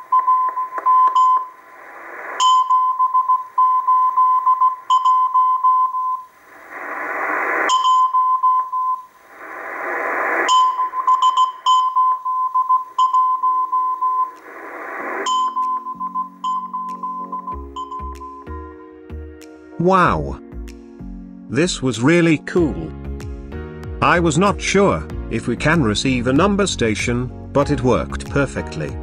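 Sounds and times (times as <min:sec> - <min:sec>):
morse code beeping tone: 0:00.0 - 0:01.6, 0:02.4 - 0:06.3, 0:07.7 - 0:09.1, 0:10.5 - 0:14.4, 0:15.2 - 0:18.9
radio static hiss: 0:00.0 - 0:18.6
quiet background music: 0:15.3 - 0:23.0, 0:24.0 - 0:29.0.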